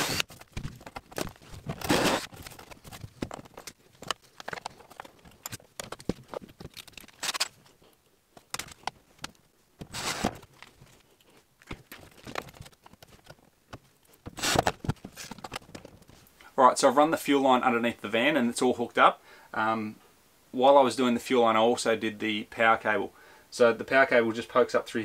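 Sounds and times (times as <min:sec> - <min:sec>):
cordless drill driving screws: 0:00.0 - 0:00.2, 0:01.8 - 0:02.3
handling clicks and knocks: 0:00.2 - 0:07.4, 0:08.3 - 0:16.2.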